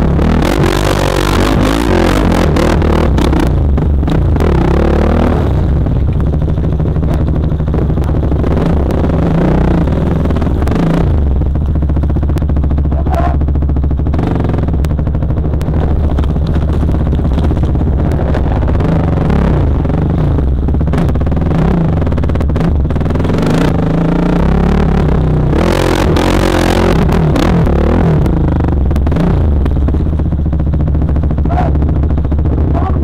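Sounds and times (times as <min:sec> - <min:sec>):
dirt bike engine running: 0:00.0 - 0:33.0.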